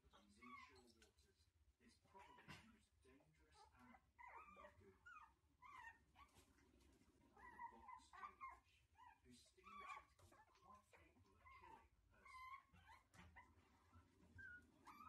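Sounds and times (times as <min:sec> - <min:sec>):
puppies whimpering and yipping: 0:03.7 - 0:06.5, 0:07.4 - 0:10.6, 0:11.4 - 0:15.0.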